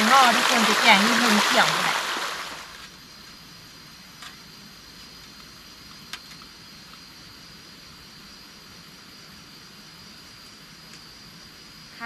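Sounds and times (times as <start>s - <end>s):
stream noise: 0.0s - 3.0s
steady hiss: 0.0s - 12.0s.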